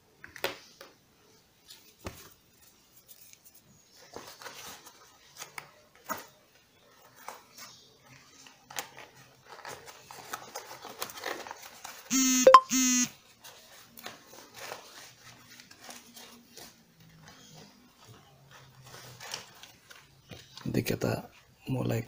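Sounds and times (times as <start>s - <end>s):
loud two-part tone: 12.1s - 13.1s.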